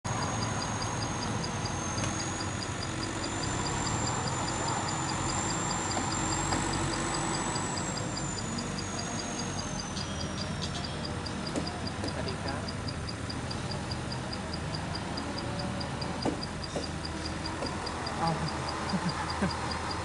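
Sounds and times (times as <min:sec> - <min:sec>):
diesel engines running: 0:00.0 - 0:20.0
thin high whine: 0:00.1 - 0:12.7
fast high ticking: 0:00.1 - 0:20.0.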